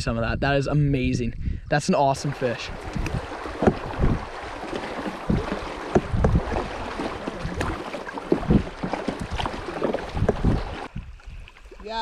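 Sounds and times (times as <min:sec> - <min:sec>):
low thumps and splashes: 0:01.9 - 0:12.0
river water rushing: 0:02.2 - 0:10.9.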